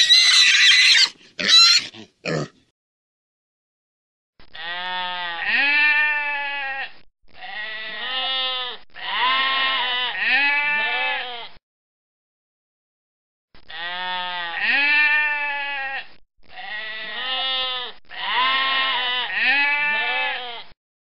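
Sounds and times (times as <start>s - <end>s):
goats bleating: 0.0s - 2.5s, 4.6s - 11.4s, 13.7s - 20.6s.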